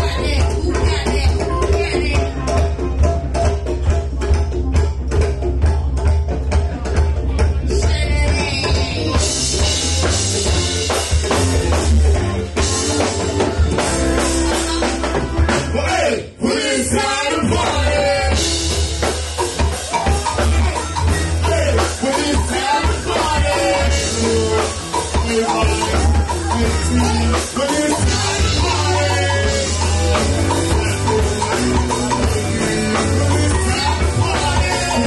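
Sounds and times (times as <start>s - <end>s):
vocalists singing: 0.0s - 3.3s, 13.8s - 35.0s
live band playing: 0.0s - 35.0s.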